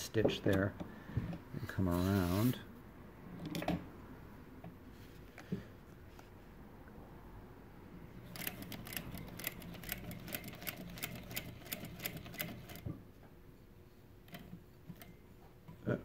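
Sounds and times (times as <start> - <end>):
sewing machine motor hum: 8.2 - 12.9.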